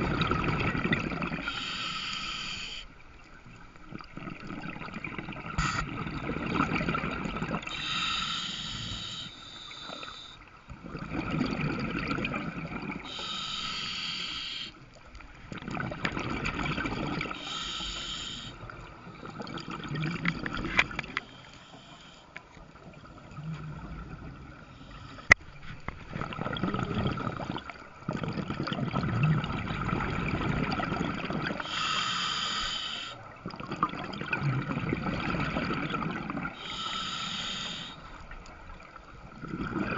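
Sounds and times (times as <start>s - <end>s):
exhaled bubbles gurgling: 0.0s - 2.7s, 3.6s - 13.9s, 15.2s - 21.4s, 22.7s - 39.9s
regulator breathing underwater: 1.3s - 2.9s, 7.5s - 10.5s, 12.8s - 14.8s, 16.8s - 19.9s, 20.6s - 22.6s, 24.5s - 25.4s, 29.8s - 33.3s, 35.0s - 38.3s.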